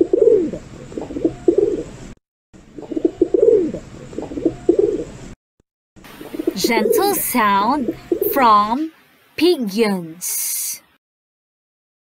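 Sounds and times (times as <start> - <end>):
pigeon cooing: 0.0 - 1.9, 2.8 - 5.0.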